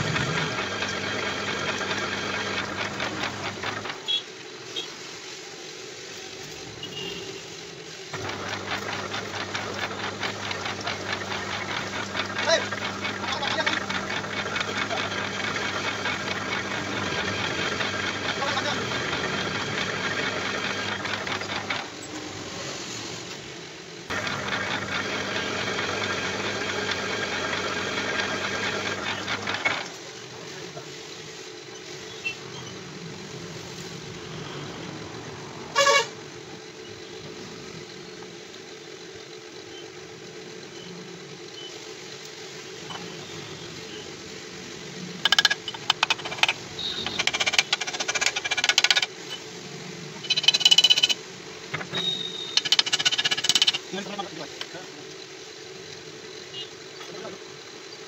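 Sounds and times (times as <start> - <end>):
lathe running: 0.0 - 4.1, 8.1 - 22.5, 24.1 - 30.3, 45.2 - 49.1, 50.1 - 55.7
metallic clicks and clinks: 50.2 - 51.2.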